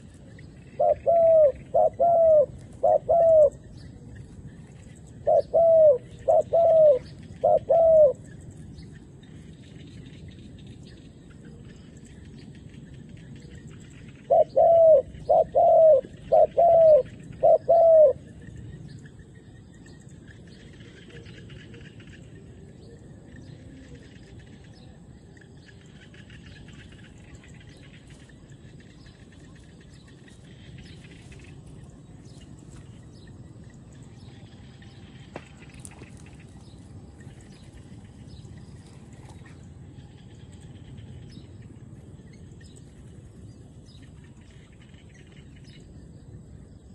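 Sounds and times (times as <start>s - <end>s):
dove cooing: 0.0s - 8.6s, 14.2s - 18.4s
faint small birds chirping: 0.0s - 46.9s.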